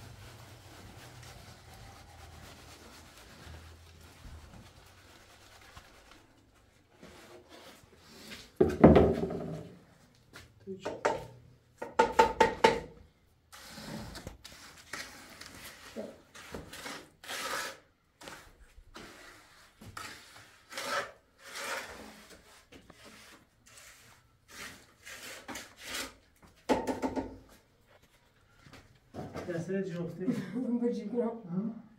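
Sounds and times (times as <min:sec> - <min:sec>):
trowel scraping wet mortar: 0:13.5 - 0:26.3.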